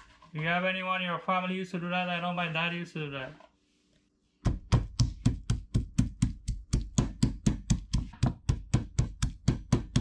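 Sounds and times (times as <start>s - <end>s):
stone pestle pounding in mortar: 4.5s - 10.0s.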